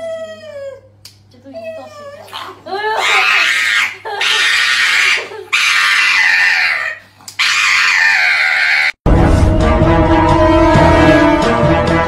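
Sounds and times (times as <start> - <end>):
dog howling and crying: 1.6 - 9.0.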